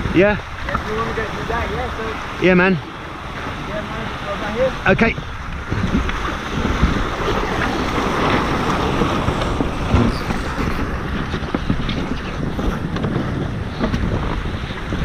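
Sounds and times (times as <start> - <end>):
water rushing along hulls: 0.0 - 15.0
wind buffeting microphone: 0.0 - 15.0.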